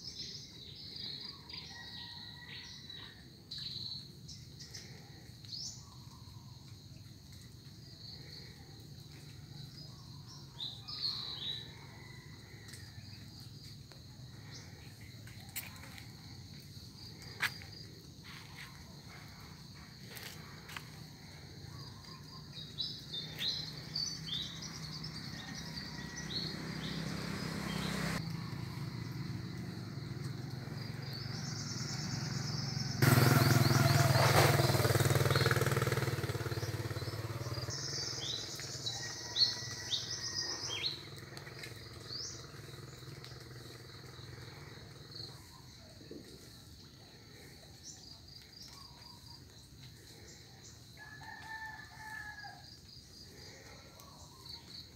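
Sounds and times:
small birds chirping: 0:17.0 - 0:28.2
motor engine passing: 0:20.2 - 0:45.3.

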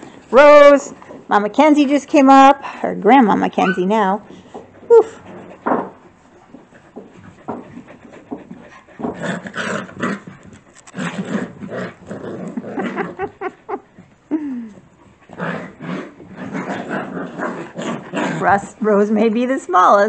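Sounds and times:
puppies growling and whimpering: 0:03.6 - 0:05.7, 0:06.5 - 0:18.8.

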